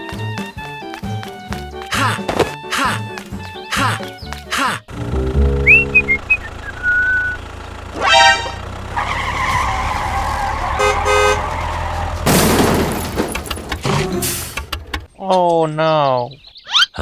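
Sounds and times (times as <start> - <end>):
tractor engine running: 0.0 - 15.1
horn blasts: 8.0 - 9.8, 10.6 - 11.8.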